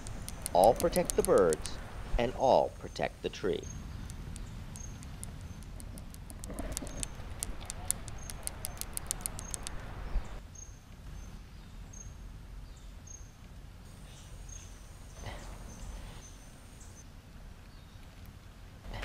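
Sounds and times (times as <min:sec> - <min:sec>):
rapid sharp clicks: 0:00.0 - 0:01.8, 0:04.0 - 0:10.0.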